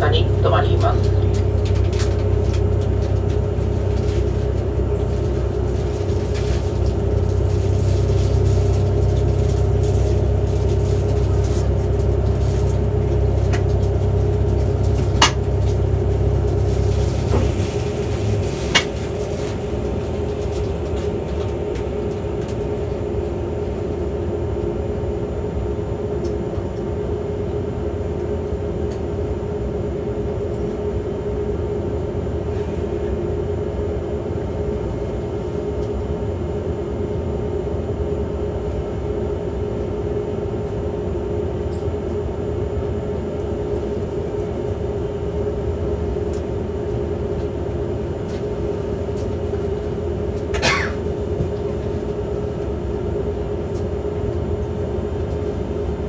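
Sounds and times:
low rumble: 0.0s - 23.9s
train equipment hum: 0.0s - 56.0s.

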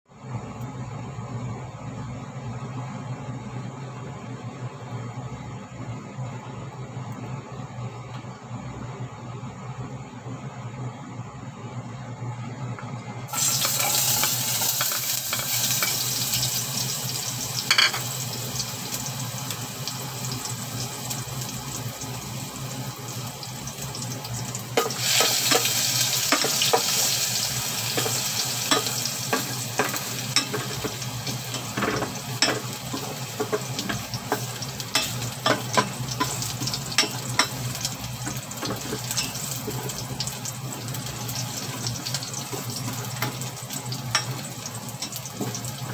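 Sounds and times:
garlic sizzling in hot oil: 13.3s - 45.9s
spoon stirring against pot: 28.0s - 40.2s.

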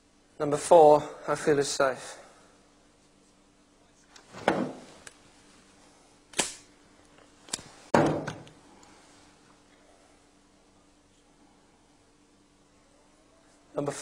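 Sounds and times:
gun knocking on table: 4.4s - 4.9s, 8.0s - 8.5s.

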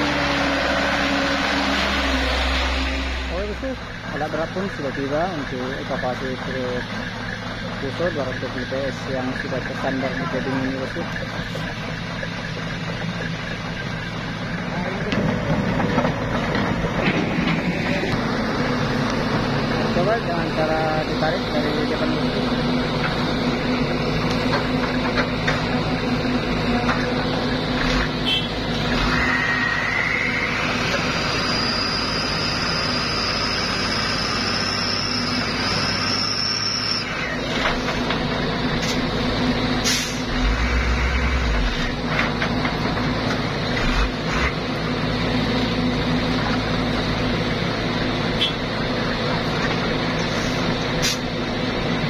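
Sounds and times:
heavy diesel engines straining: 0.0s - 52.0s
high whine: 27.4s - 37.5s
short sharp hisses: 39.8s - 40.3s, 50.3s - 51.3s.

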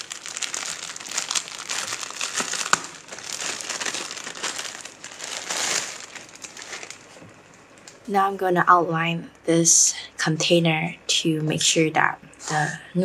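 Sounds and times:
plastic wrapping crinkling: 0.0s - 8.1s.

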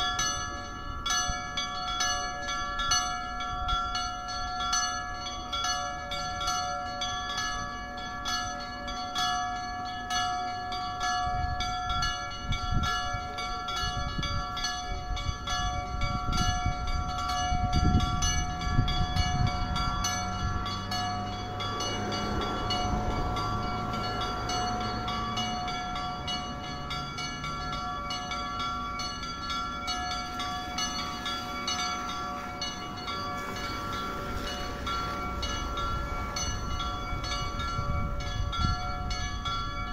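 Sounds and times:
church bells ringing: 0.0s - 39.9s.

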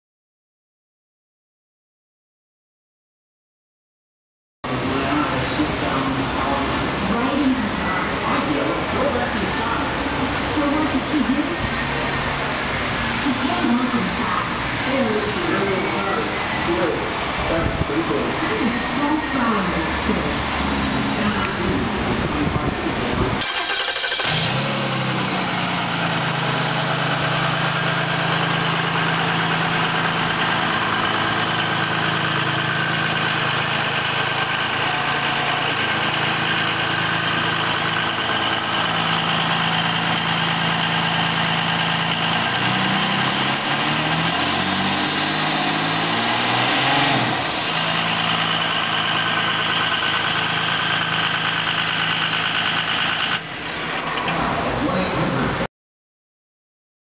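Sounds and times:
diesel engine idling and revving: 4.6s - 55.7s.

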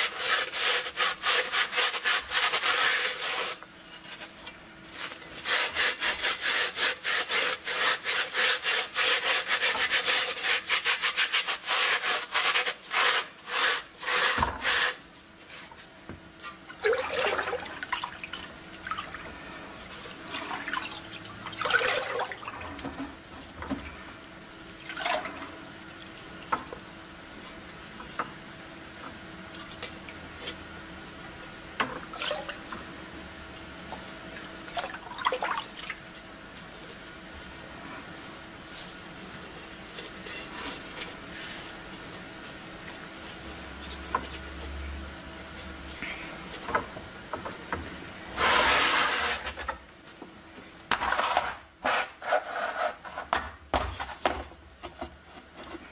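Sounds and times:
sponge scrubbing metal: 0.0s - 15.0s
liquid sloshing and splashing: 16.8s - 19.3s, 20.2s - 22.8s, 34.7s - 36.0s.

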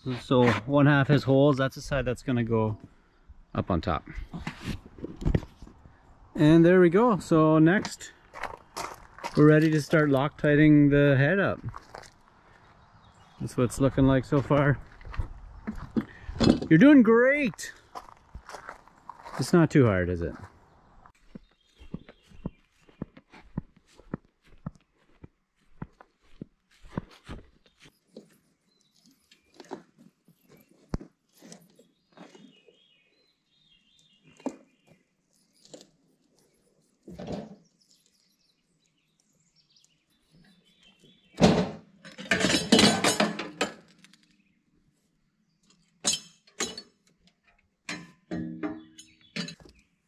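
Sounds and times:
birds chirping: 5.4s - 42.3s, 48.4s - 50.0s.

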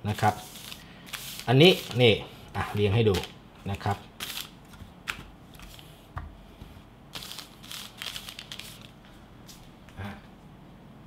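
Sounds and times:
plastic packets crinkling: 7.2s - 9.0s.

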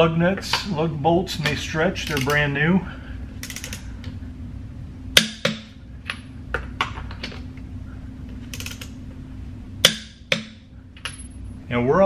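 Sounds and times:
fast ratchet clicking: 3.4s - 3.8s, 8.5s - 8.9s
torque wrench clicks: 3.4s - 3.8s, 8.5s - 8.9s.

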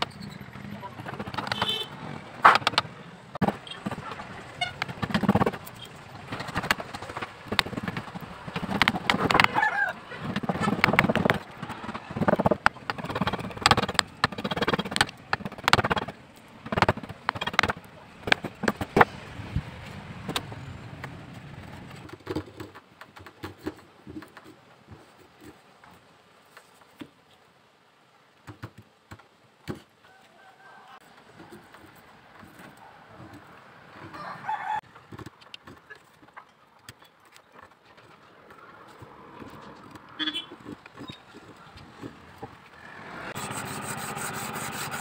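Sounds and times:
chisel scraping wood: 7.5s - 9.6s, 10.2s - 18.9s, 43.3s - 45.0s
tool knocking on wood and metal: 16.7s - 19.0s.

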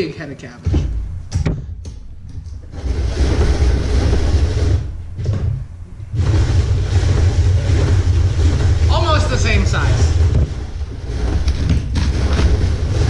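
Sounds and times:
cabbage being shredded: 6.2s - 13.0s.

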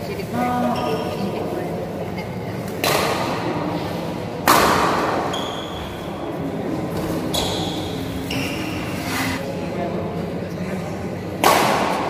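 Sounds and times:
racket hitting shuttlecock: 2.8s - 3.4s, 4.4s - 5.3s, 11.4s - 12.0s.

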